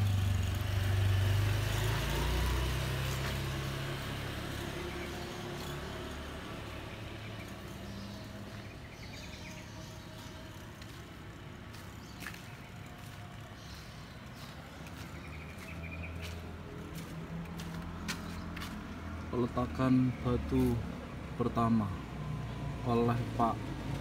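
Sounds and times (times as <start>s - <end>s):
faint street noise: 0.0s - 24.0s
vehicle engine humming: 0.0s - 24.0s.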